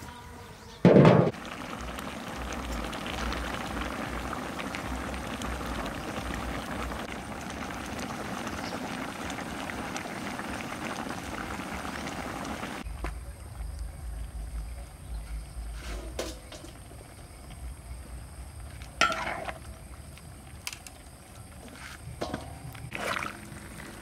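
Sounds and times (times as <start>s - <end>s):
loud thump: 0.8s - 1.4s
sauce bubbling in a wok: 1.3s - 15.6s, 16.4s - 24.0s.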